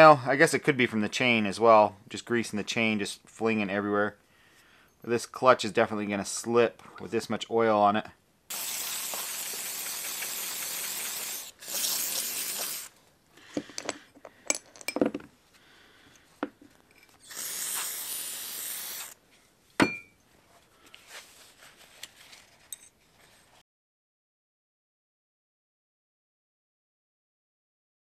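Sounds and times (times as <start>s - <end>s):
aerosol spray hissing: 8.5s - 12.9s, 17.2s - 19.2s
small metal parts clinking: 13.5s - 15.3s.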